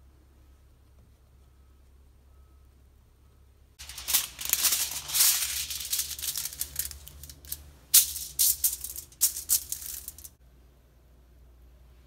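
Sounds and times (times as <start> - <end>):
aluminum foil crinkling: 3.8 - 10.3.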